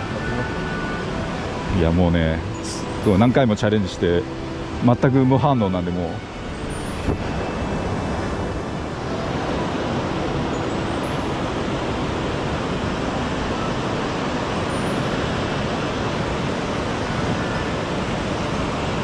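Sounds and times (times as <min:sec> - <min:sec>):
stream rushing: 0:00.0 - 0:19.0.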